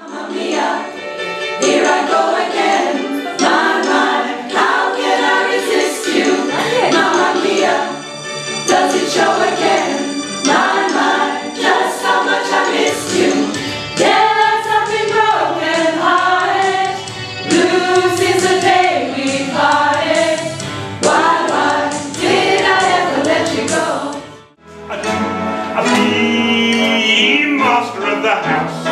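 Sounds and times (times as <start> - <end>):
choir singing: 0.0 - 28.9.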